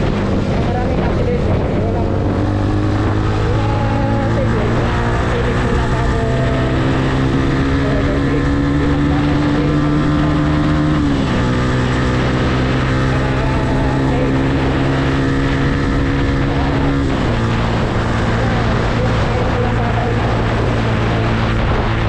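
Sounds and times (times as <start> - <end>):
motorcycle engine running: 0.0 - 22.0
wind rushing: 0.0 - 22.0.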